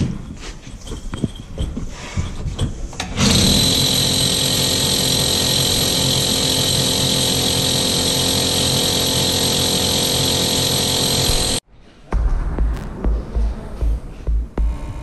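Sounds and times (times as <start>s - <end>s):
hammer drill boring into wall: 3.0s - 11.6s.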